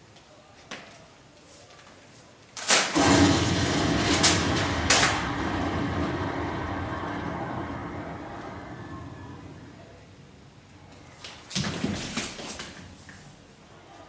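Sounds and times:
sharp cracks: 2.6 - 9.9
explosion blast: 3.0 - 10.2
long rumble: 3.0 - 10.4.

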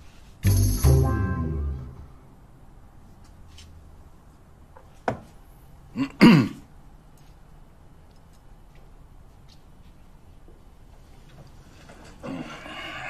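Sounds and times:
music chord: 0.4 - 2.4.

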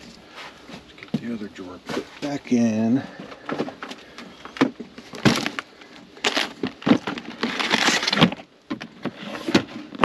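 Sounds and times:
plastic drawer sliding: 6.4 - 10.0
hard plastic knocks and scrapes: 6.5 - 10.0.

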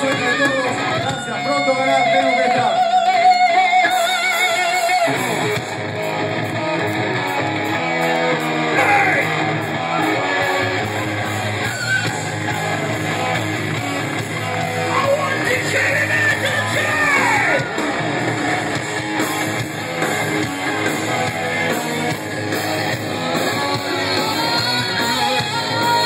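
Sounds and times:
heavy metal band playing live: 0.0 - 26.0
person shouting vocals: 8.7 - 10.1, 14.9 - 17.7.

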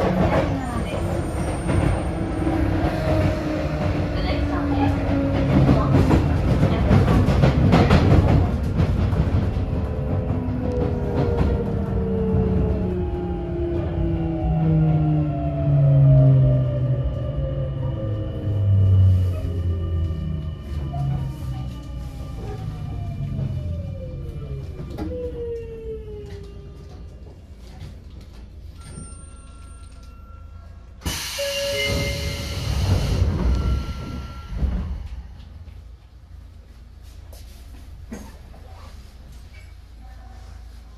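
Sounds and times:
train wheels rumbling on rail: 0.0 - 30.2, 31.0 - 36.6
clacks over rail joints: 3.0 - 11.7.

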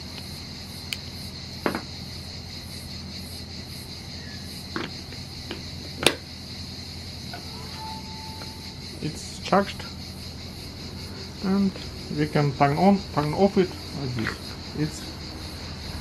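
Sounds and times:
high-pitched background tone: 7.3 - 10.0.

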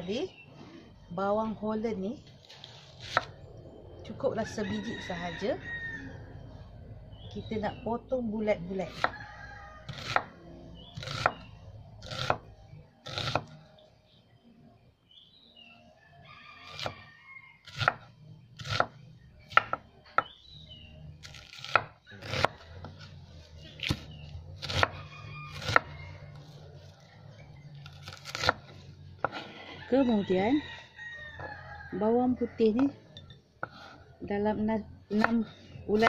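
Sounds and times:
knife slicing onion: 11.0 - 13.5, 17.6 - 20.3, 21.2 - 26.5, 27.8 - 29.6.

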